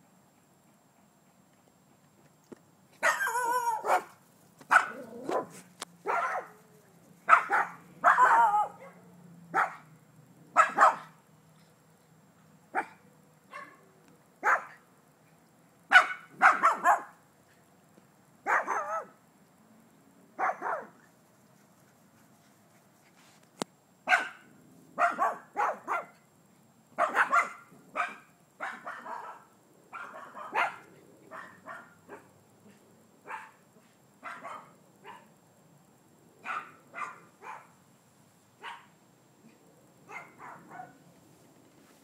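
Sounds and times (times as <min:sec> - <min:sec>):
small dog barking: 0:03.0 - 0:09.9, 0:10.5 - 0:11.2, 0:12.7 - 0:14.8, 0:15.9 - 0:17.2, 0:18.4 - 0:19.2, 0:20.4 - 0:21.0, 0:24.1 - 0:26.2, 0:27.0 - 0:33.6, 0:34.2 - 0:35.3, 0:36.4 - 0:37.8, 0:38.6 - 0:38.9, 0:40.1 - 0:41.0.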